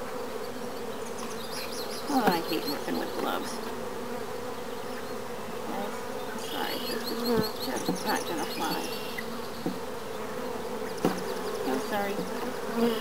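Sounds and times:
bee flying past: 0.0s - 13.0s
honeybees buzzing: 0.0s - 13.0s.

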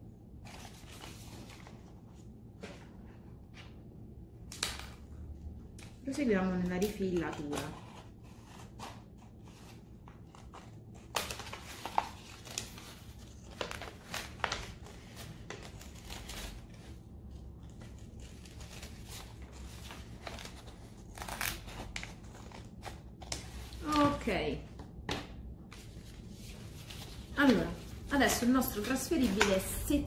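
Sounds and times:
plastic sheet rustling and crinkling: 25.6s - 30.0s.

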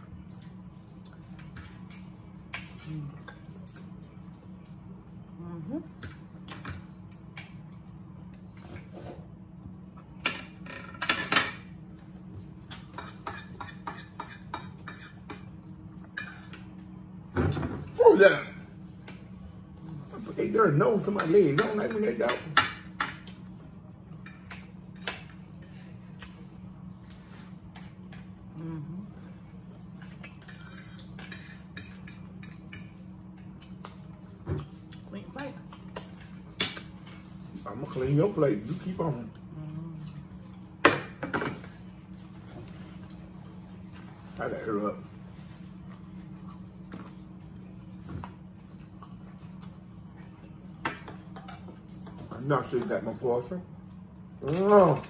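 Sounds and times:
steady low hum: 0.0s - 55.0s
cutlery scraping and clinking on plates: 12.8s - 15.5s, 30.0s - 33.0s.

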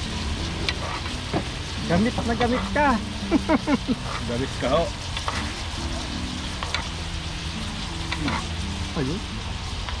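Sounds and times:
fish sizzling in a pan: 0.0s - 10.0s.

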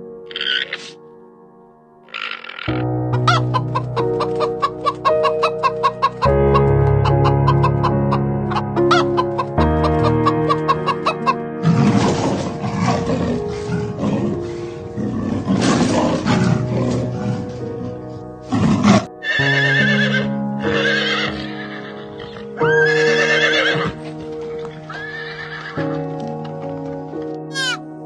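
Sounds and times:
background music: 0.0s - 28.0s
horse whinnying: 0.3s - 1.0s, 2.1s - 2.8s, 18.5s - 24.0s, 24.6s - 25.9s.

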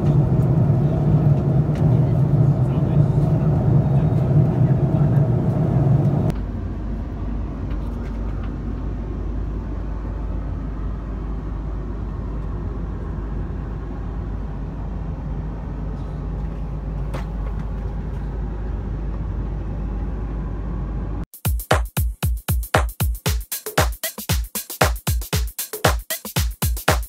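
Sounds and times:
airplane cabin drone: 0.0s - 21.3s.

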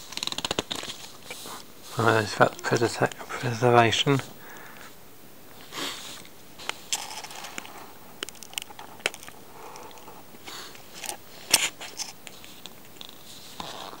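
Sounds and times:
sharp paper clicks: 0.0s - 1.5s.

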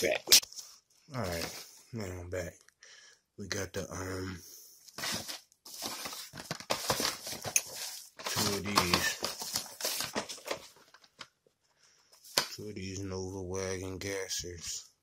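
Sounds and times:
bubble wrap crinkling: 5.0s - 11.2s.

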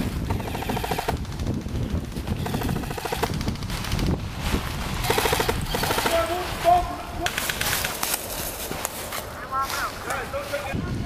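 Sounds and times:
airsoft rifles automatic fire: 0.3s - 1.8s, 2.4s - 4.0s, 5.0s - 6.4s.

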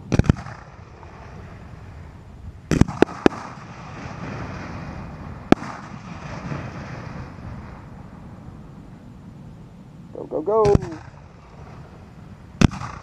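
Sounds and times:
firework shells bursting: 0.0s - 1.9s, 2.6s - 7.9s, 10.6s - 13.0s
firework launch bang: 0.0s - 8.1s, 10.6s - 11.9s, 12.5s - 13.0s.

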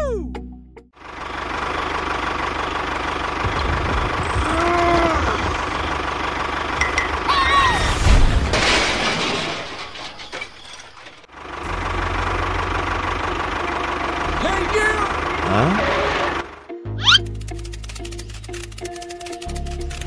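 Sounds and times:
toy tractor engine running: 17.1s - 20.0s.

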